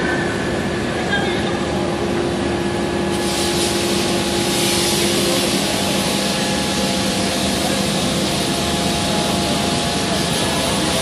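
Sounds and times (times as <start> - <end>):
low machinery hum: 0.0 - 11.0
forging machinery hissing: 2.7 - 11.0.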